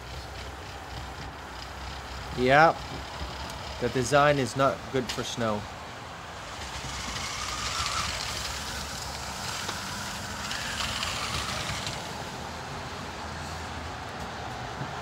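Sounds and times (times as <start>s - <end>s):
toy car motors whirring: 0.0s - 5.4s, 6.4s - 12.5s
wheels churning through snow: 0.0s - 13.7s.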